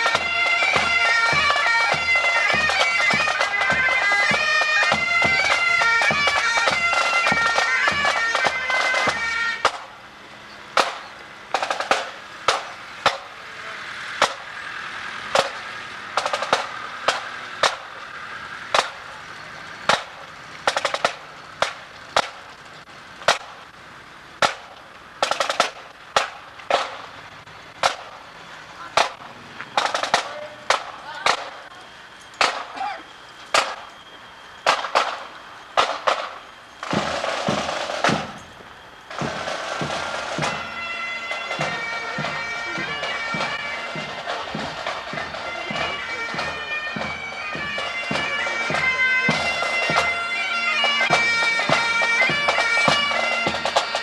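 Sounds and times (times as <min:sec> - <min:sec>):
bagpipes playing: 0:00.0 - 0:10.8, 0:39.1 - 0:54.0
marching drums: 0:00.0 - 0:23.8, 0:24.4 - 0:54.0.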